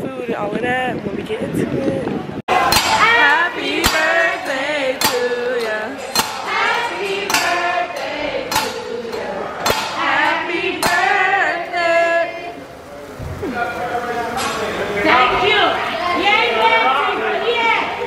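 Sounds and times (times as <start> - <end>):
people singing: 2.5 - 12.8
sharp clack keeping a beat: 2.6 - 11.2.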